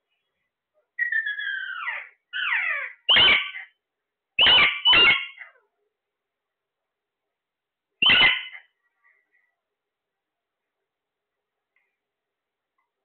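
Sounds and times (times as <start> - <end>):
parakeets calling: 1.0 - 3.8, 4.4 - 5.6, 8.0 - 8.8.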